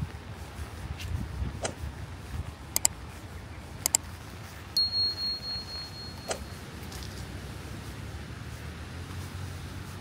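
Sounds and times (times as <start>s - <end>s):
sharp double click: 3.8s - 4.0s
high-pitched ring: 4.8s - 6.6s.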